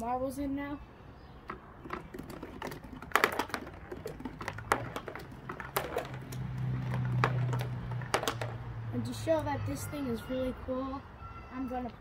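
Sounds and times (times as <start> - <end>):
marbles clicking in cardboard tube: 1.5 - 8.6.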